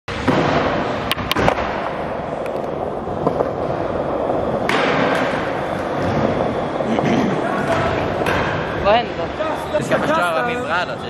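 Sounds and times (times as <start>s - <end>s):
skateboard wheels rolling on concrete: 0.1s - 11.0s
skateboards clacking on floor: 0.3s - 8.7s.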